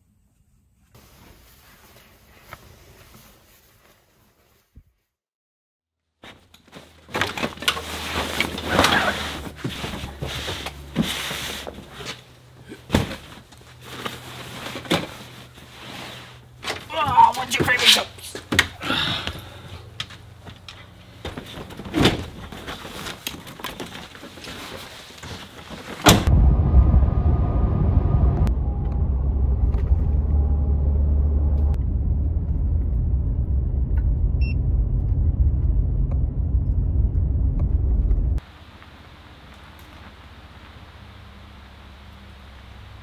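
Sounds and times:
truck driving rumble: 26.2 - 38.4.

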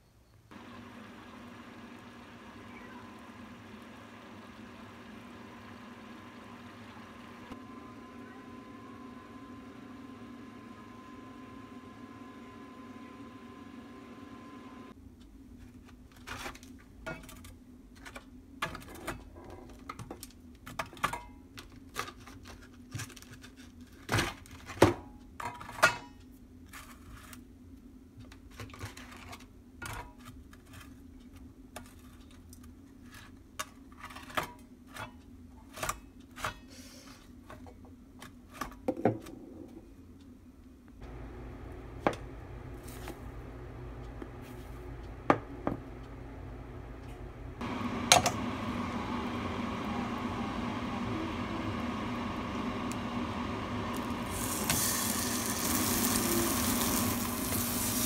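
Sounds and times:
steady low hum: 39.4 - 58.0.

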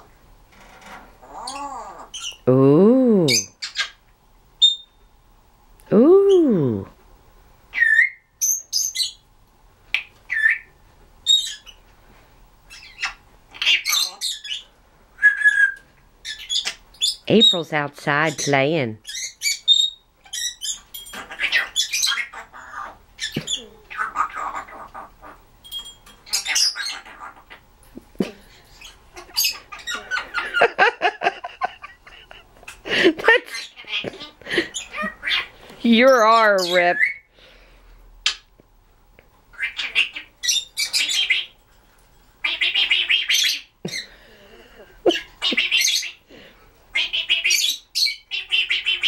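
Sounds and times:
parrot chirping and squeaking: 0.8 - 2.4, 3.3 - 4.0, 4.6 - 5.0, 7.7 - 9.2, 10.3 - 11.8, 12.7 - 17.6, 18.2 - 27.6, 28.7 - 30.5, 33.5 - 37.3, 39.5 - 41.6, 45.1 - 46.2, 46.9 - 49.0
parrot clicks squeaks and chirps: 15.4 - 17.2.

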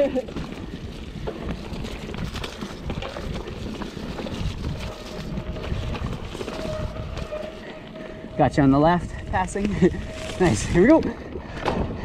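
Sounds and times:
bike rattling over bumps: 0.0 - 12.0
bike tyres rolling on dirt: 0.0 - 12.0
wind on microphone: 0.5 - 12.0.

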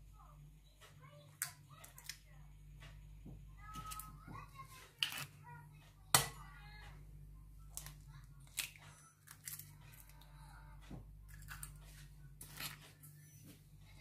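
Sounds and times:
egg cracking: 7.7 - 10.3, 11.3 - 11.8.

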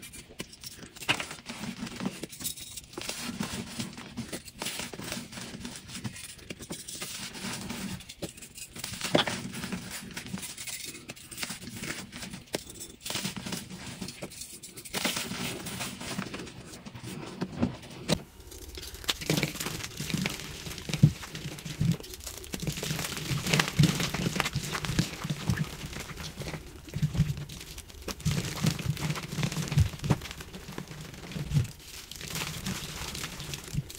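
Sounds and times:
chalk blocks crunching by hand: 18.1 - 33.9.

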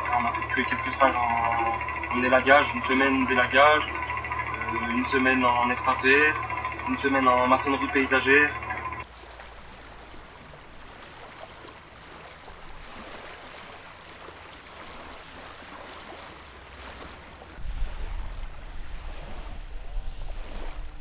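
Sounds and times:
small waves lapping on pebbles: 9.0 - 21.0
wind buffeting microphone: 17.6 - 21.0.

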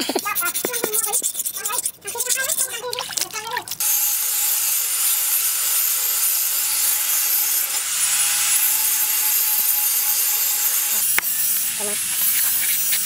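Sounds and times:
knife scraping on sharpening stone: 0.0 - 3.0, 11.4 - 13.0.

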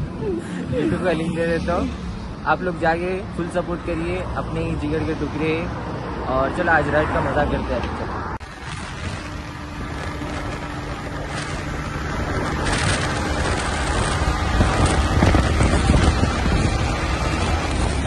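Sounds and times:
wind rushing over microphone: 0.0 - 18.0
faint motorcycle engine: 8.5 - 18.0.

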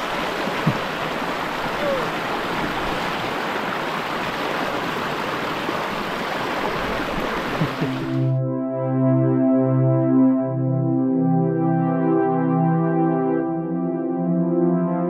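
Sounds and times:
creek water rushing: 0.0 - 8.4
soft synthesizer music: 7.8 - 15.0.

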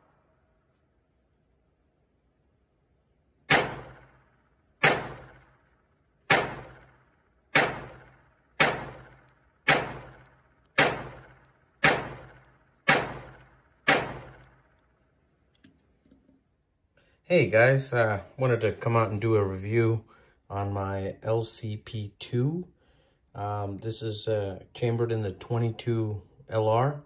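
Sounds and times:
pistol shots with echo: 3.5 - 5.7, 6.3 - 14.8.

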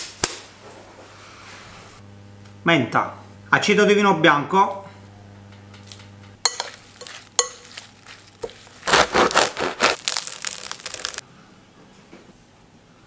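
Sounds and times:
knife sawing through crusty bread: 8.0 - 11.2.

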